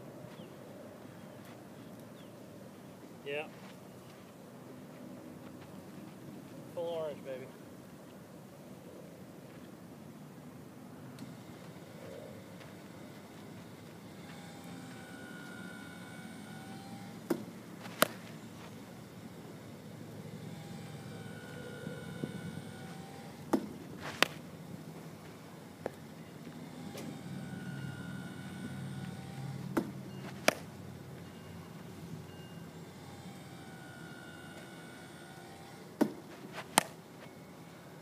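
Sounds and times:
faint wavering whine: 3.9s - 38.0s
bat cracking against baseball: 17.2s - 18.8s, 23.4s - 24.5s, 29.7s - 30.7s, 36.0s - 37.0s.

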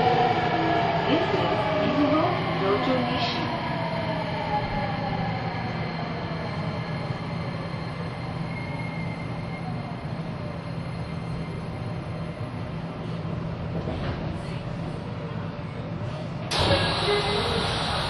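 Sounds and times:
electric train running: 16.5s - 18.0s.

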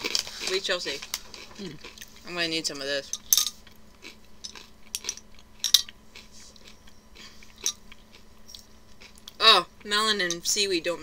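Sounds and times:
person chewing crunchy cracker: 0.0s - 2.3s, 3.5s - 9.9s.

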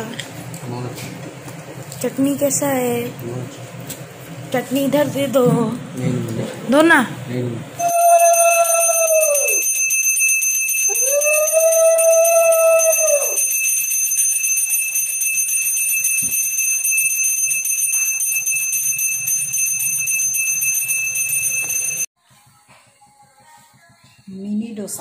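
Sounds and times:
handbell ringing: 7.8s - 22.1s.

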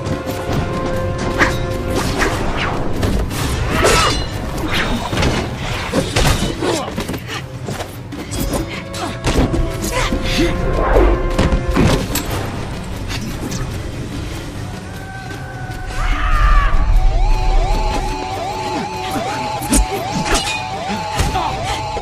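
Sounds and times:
dramatic film score: 0.0s - 22.0s.

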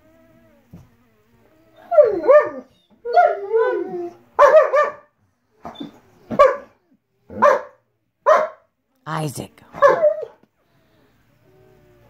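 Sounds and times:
dog whining and yipping: 1.6s - 4.8s, 5.6s - 6.6s.

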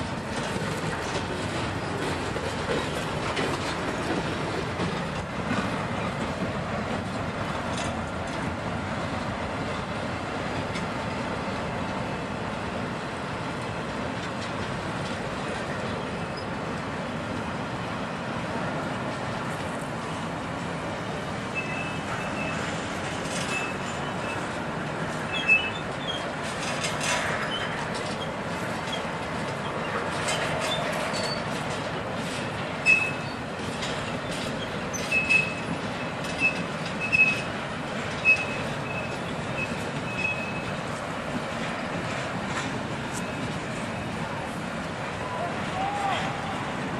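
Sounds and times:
train wheels rumbling on rails: 0.0s - 46.9s
high wheel squeals: 21.5s - 31.6s, 32.3s - 37.5s, 38.1s - 40.8s.

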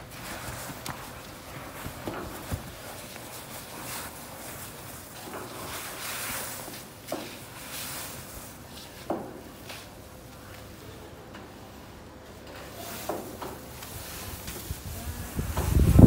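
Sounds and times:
paint roller swishing on metal: 0.1s - 10.0s.

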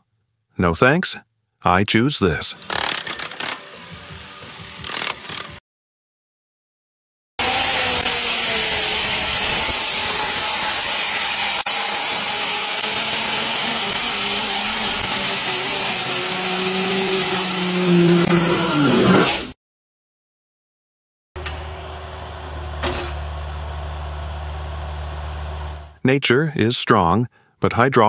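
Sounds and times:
power cutter motor whine: 7.4s - 19.4s
cutting hiss: 7.4s - 19.6s.

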